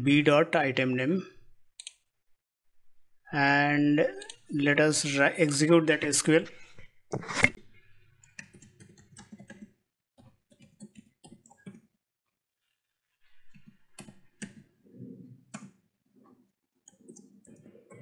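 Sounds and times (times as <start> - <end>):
faint computer keyboard typing: 8.2 - 11.9, 13.4 - 14.7.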